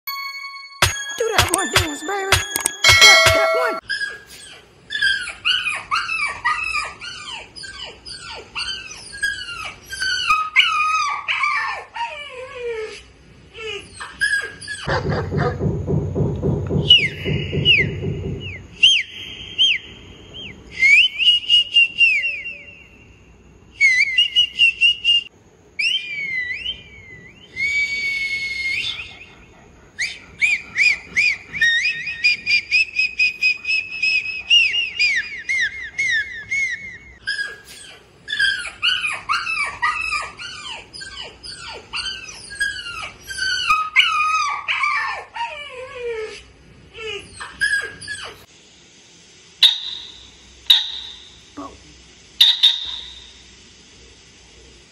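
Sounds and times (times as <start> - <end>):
whistled chirps and trills: 16.8 - 37.6, 49.6 - 51.5, 52.4 - 53.5.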